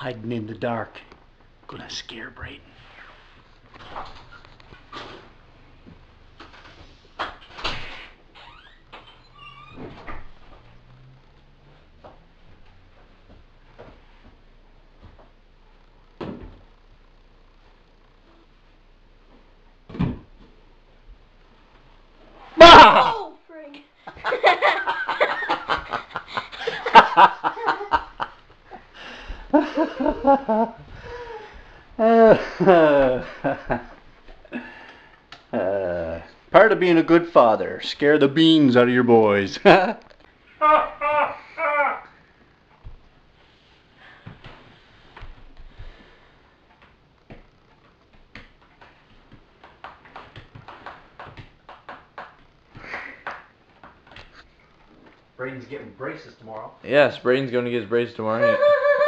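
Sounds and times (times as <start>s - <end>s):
person laughing hard: 22.6s - 23.3s, 24.1s - 28.8s, 29.5s - 34.8s, 40.6s - 42.1s, 58.4s - 59.0s.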